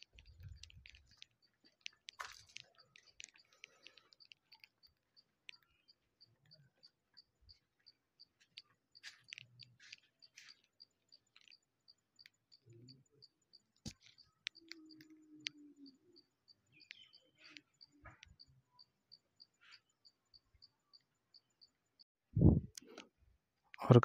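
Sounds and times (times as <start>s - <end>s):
faint clicks: 0.0s - 18.5s
insect chirping: 0.0s - 22.0s.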